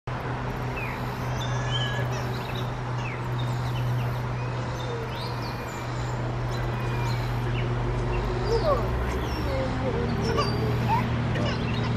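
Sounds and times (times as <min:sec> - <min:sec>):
bird singing varied notes: 0:00.7 - 0:11.9.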